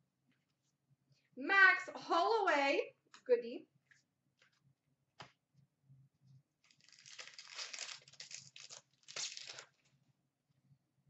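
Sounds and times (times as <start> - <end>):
foil wrapper tearing and crinkling: 6.6 - 9.9.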